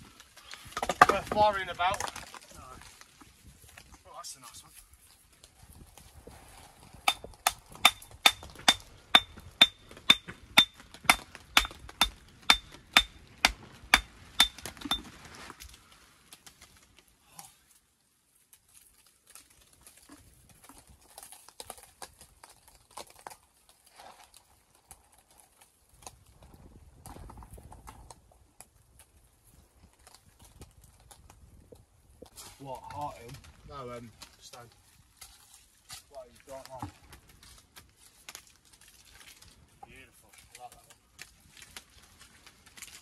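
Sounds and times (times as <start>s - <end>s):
hammer striking stone: 7.0s - 15.1s
stone knocks: 7.1s - 15.1s.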